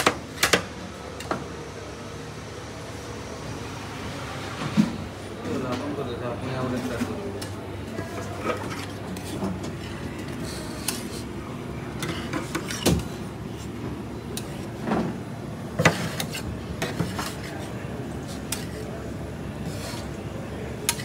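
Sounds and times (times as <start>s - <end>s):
metal spatulas scraping cold slab: 8.4s - 11.3s, 15.8s - 17.7s, 18.3s - 18.9s.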